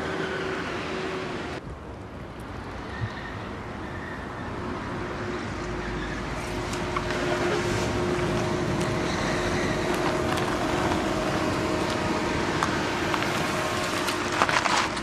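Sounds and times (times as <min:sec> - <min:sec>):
street traffic: 0:00.0 - 0:15.0
car engine running: 0:06.5 - 0:15.0.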